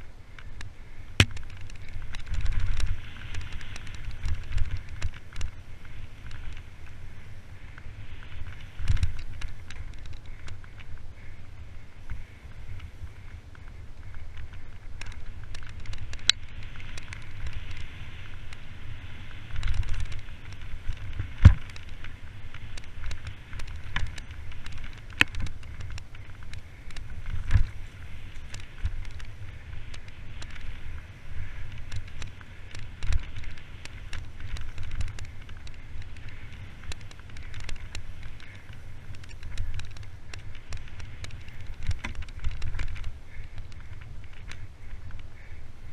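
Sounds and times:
bike tyres rumbling over dirt: 0.0s - 45.9s
bike knocking over bumps: 1.2s - 5.6s, 19.4s - 44.7s.

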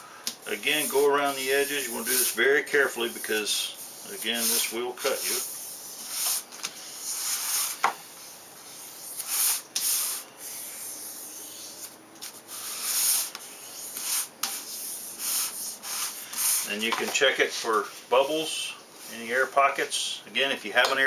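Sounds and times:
hands rubbing contact paper: 0.6s - 7.8s, 8.7s - 16.9s.

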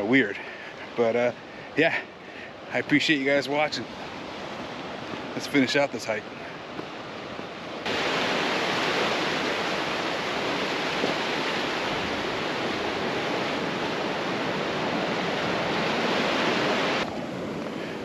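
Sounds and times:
waves breaking on a beach: 0.0s - 18.0s.

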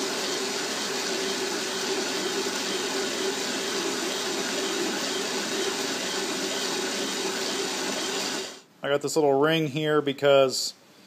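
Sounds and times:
metal lathe running: 0.0s - 8.6s
steady machine whine: 0.0s - 8.6s.

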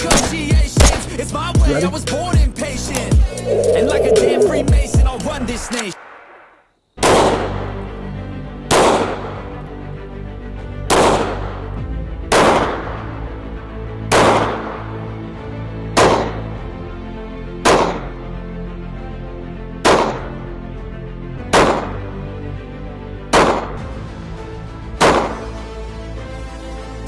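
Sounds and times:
low music drone: 3.2s - 5.4s.

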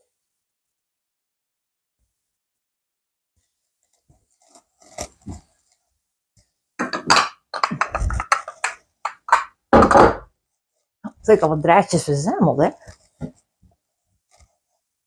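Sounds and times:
hard objects clinking and clattering: 6.8s - 10.2s.

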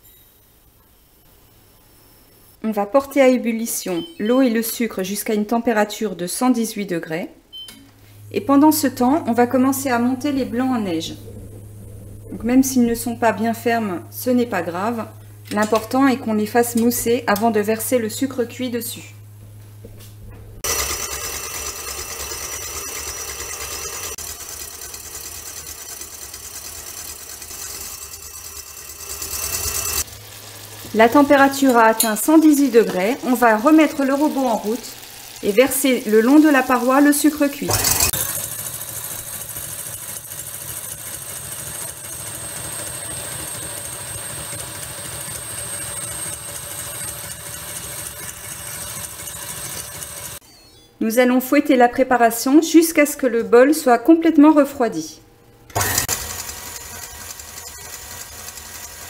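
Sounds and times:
stand mixer whisking: 20.6s - 50.4s, 55.7s - 59.0s.

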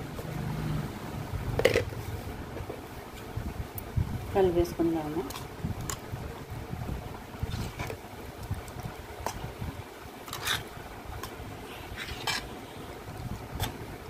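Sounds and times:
low steady hum: 0.0s - 14.0s
spoon stirring thick pickle: 10.2s - 12.6s.

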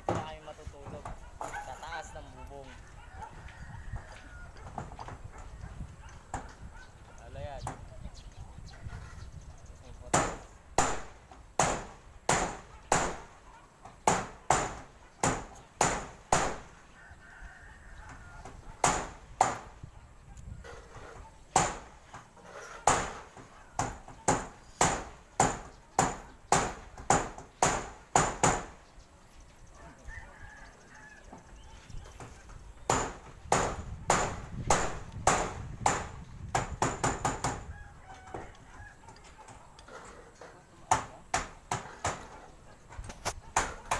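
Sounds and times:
rooster crowing faintly: 1.4s - 5.1s, 16.7s - 18.9s, 29.7s - 32.6s, 37.4s - 40.7s
hammer on metal roof sheet: 10.1s - 13.4s, 14.0s - 16.8s, 18.4s - 19.8s, 20.6s - 28.8s, 32.2s - 37.7s, 39.9s - 42.5s, 43.4s - 43.9s.

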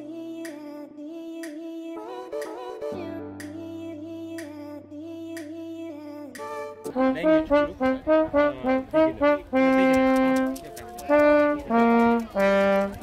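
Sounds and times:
trombone playing a tune: 6.4s - 13.0s.

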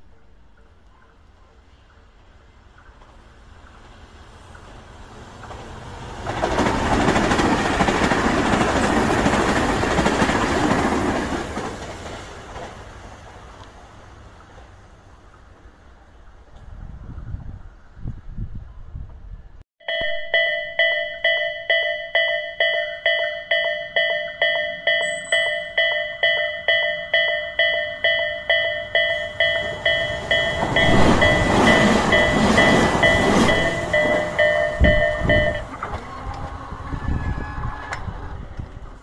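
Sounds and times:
electric train passing: 1.3s - 17.1s, 19.9s - 39.0s
level crossing bell ringing: 19.8s - 35.8s.

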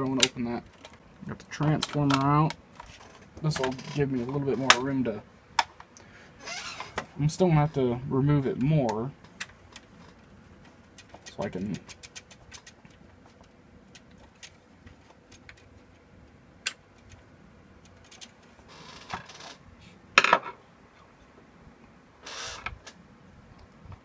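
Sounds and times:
small clicks and knocks: 8.9s - 17.2s.

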